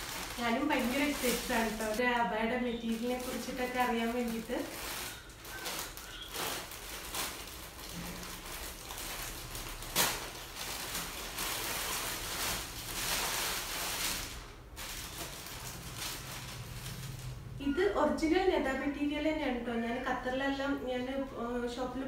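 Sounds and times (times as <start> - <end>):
packaging wrapper crinkling: 0.0 - 17.6.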